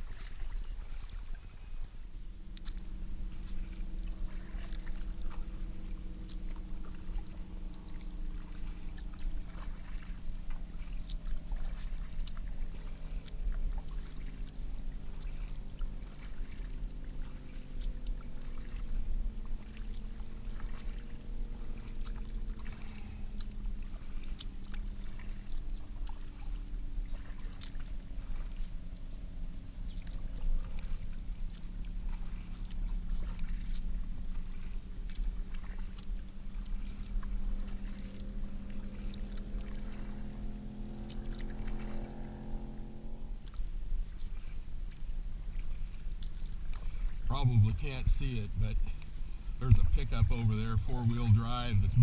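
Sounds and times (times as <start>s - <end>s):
paddle splashing in water: 0.0s - 52.0s
motor drone: 1.5s - 52.0s
water dripping: 2.5s - 28.8s, 29.8s - 42.6s.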